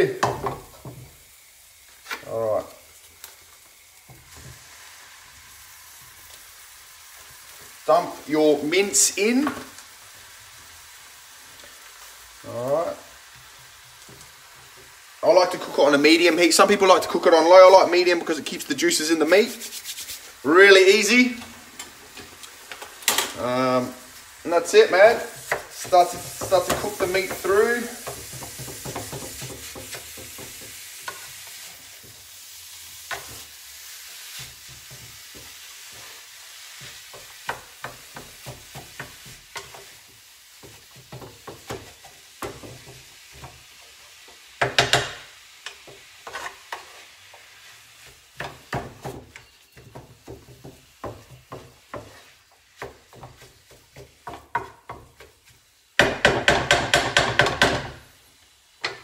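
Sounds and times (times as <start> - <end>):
meat sizzling in a frying pan: 0.0 - 59.0
spatula knocking against pan: 28.0 - 30.8, 56.0 - 58.0.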